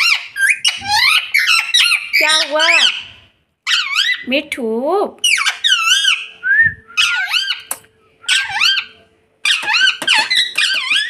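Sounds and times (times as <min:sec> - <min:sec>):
parakeet squeaky calls: 0:00.0 - 0:04.3, 0:05.2 - 0:06.4, 0:07.0 - 0:07.7, 0:08.3 - 0:11.0.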